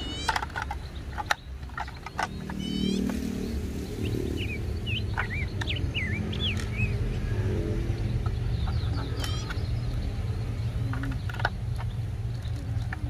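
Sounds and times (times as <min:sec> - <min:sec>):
plastic toy parts clicking: 0:00.0 - 0:02.6, 0:10.8 - 0:13.0
birds chirping: 0:00.0 - 0:13.0.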